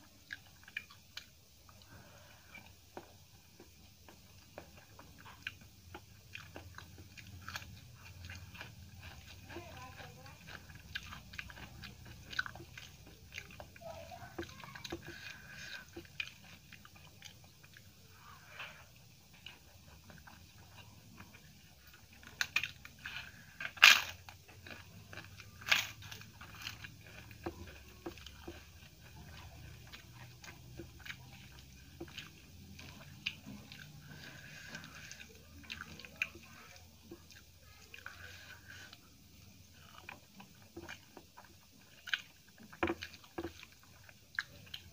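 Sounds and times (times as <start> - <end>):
wet chewing and smacking: 0.0 - 44.9
crisp crunching: 4.6 - 44.9.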